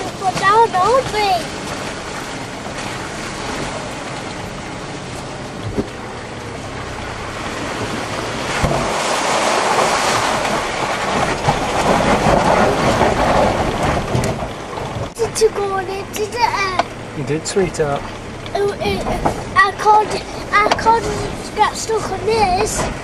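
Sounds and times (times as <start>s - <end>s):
knocks over bumps: 0.0s - 1.9s, 17.7s - 23.0s
engine and tyres rumbling: 0.0s - 23.0s.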